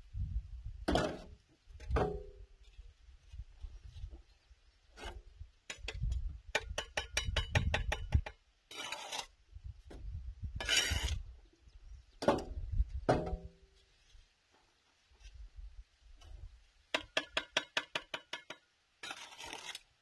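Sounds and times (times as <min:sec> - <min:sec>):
trowel scraping: 0:08.7 - 0:09.4, 0:10.6 - 0:11.2, 0:18.2 - 0:19.9.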